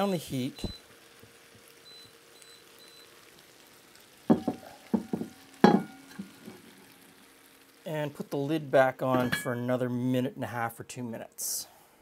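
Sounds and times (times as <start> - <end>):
pasta simmering in a pan: 0.0 - 10.3
cookware clanking: 4.3 - 6.6, 9.1 - 9.6.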